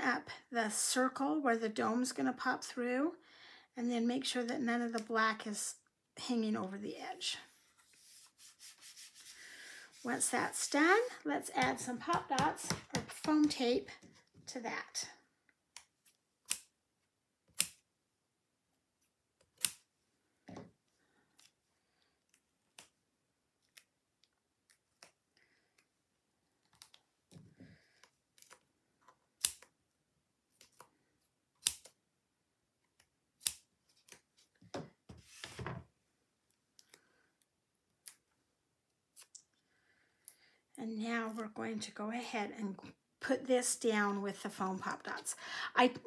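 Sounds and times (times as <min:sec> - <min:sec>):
scissors snipping tape: 0:15.8 - 0:16.8, 0:17.5 - 0:17.8, 0:19.4 - 0:19.9, 0:29.4 - 0:29.7, 0:31.6 - 0:32.0, 0:32.9 - 0:34.2.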